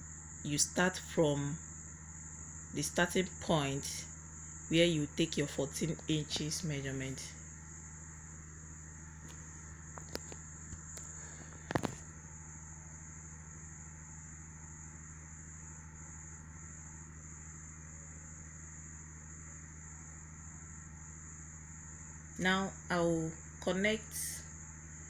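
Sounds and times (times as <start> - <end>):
steady high-pitched whine: 0.0 - 25.0.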